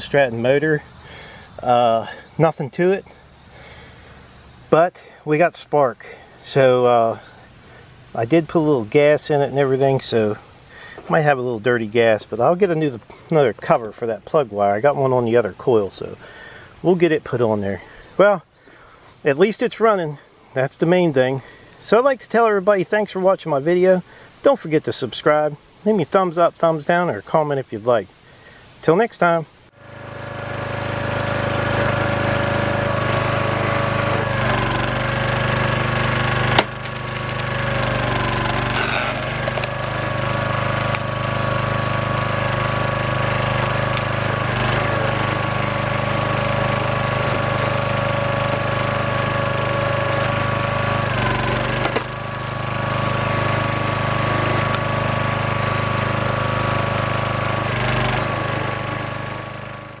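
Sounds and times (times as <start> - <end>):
small engine droning: 29.7 - 60.0.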